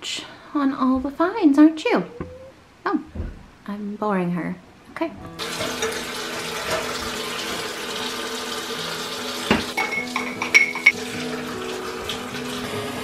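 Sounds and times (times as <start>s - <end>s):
faucet running into sink: 5.4s - 13.0s
ceramic mugs clinking: 9.5s - 11.0s.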